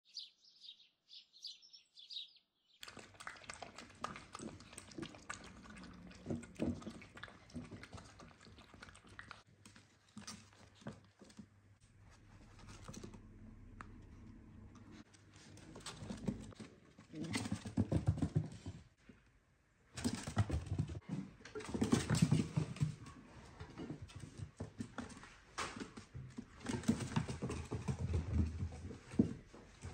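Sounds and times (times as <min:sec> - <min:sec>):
birds chirping: 0:00.1 - 0:02.8.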